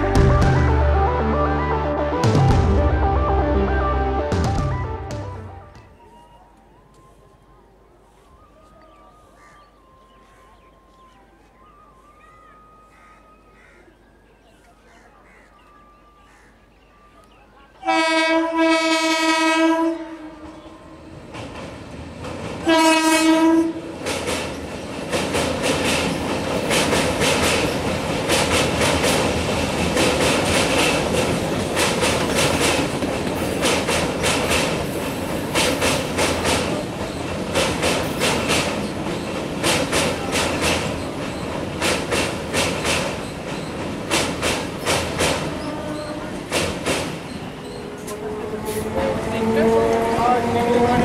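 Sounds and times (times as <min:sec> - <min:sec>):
train horn: 0:17.8 - 0:21.2, 0:22.6 - 0:23.9, 0:45.5 - 0:46.5
train passing at speed: 0:17.8 - 0:51.0
wheels clicking over rail joints: 0:23.9 - 0:51.0.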